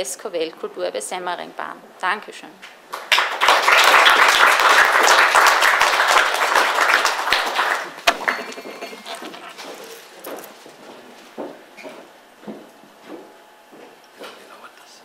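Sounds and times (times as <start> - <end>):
audience applauding: 3.0 - 9.4
sharp knock: 8.0 - 8.8.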